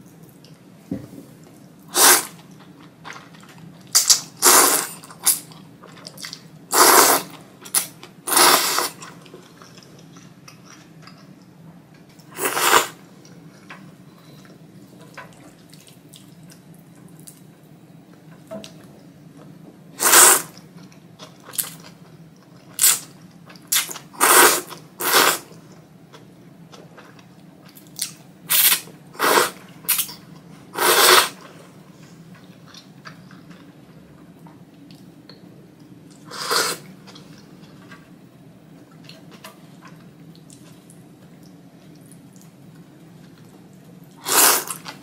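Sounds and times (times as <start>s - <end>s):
loud hissing noodle slurps: 1.9s - 2.3s, 4.4s - 4.9s, 6.7s - 7.3s, 8.3s - 9.0s, 12.4s - 13.0s, 20.0s - 20.5s, 24.2s - 25.5s, 28.5s - 30.0s, 30.8s - 31.4s, 36.3s - 36.9s, 44.2s - 44.8s
soft chewing: 9.0s - 12.3s, 37.0s - 45.0s.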